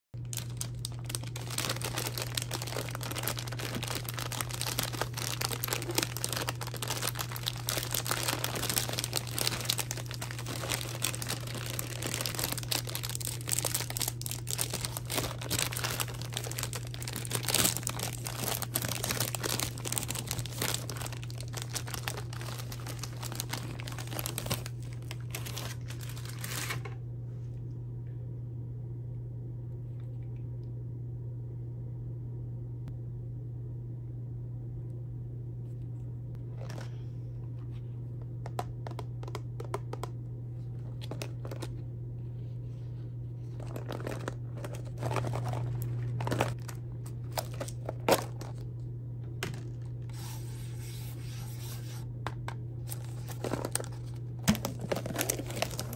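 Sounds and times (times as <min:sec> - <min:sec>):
plastic wrappers crinkling: 0:00.2 - 0:27.0, 0:40.8 - 0:41.8, 0:43.4 - 0:48.8, 0:49.4 - 0:55.9
steady low hum: 0:00.2 - 0:55.9.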